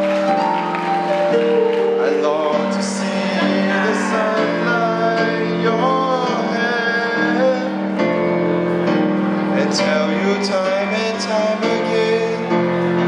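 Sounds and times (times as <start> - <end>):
piano accompaniment: 0.0 - 13.0
man singing into a microphone: 2.0 - 8.0, 9.5 - 13.0.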